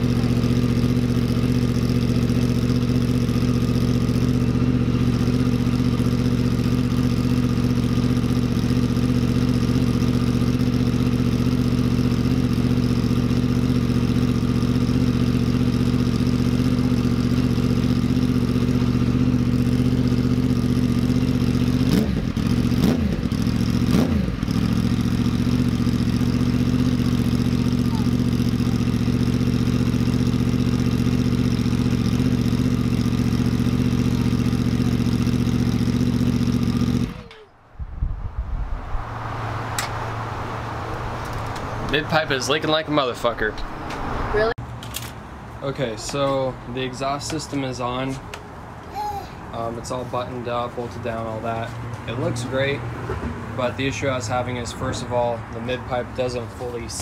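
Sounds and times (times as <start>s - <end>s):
motorcycle engine idling: 0.0s - 37.8s
engine throttle blips: 0.0s - 44.6s.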